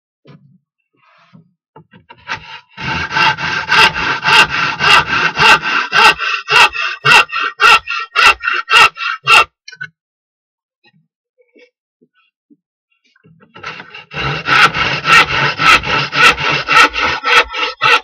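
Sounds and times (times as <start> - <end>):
hand saw cutting wood: 1.8 - 9.6, 13.4 - 18.0.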